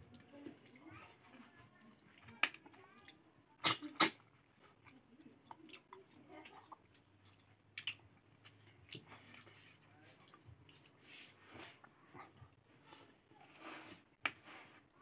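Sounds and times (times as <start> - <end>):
wet chewing and mouth smacks: 1.8 - 11.0.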